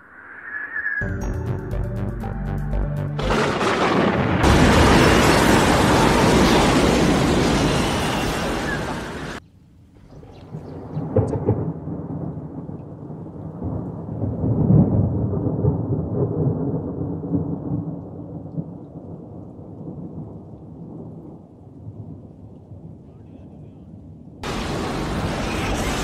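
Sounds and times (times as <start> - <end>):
low rolling thunder: 3.2 - 9.4, 10.1 - 23.0.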